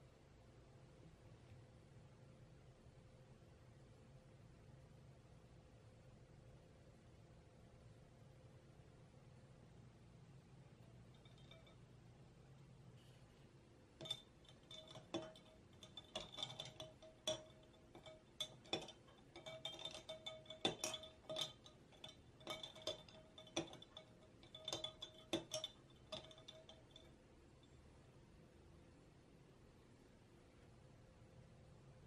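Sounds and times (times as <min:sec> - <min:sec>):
spoon clinking ice in a glass: 0:11.1 - 0:11.8, 0:14.0 - 0:27.1.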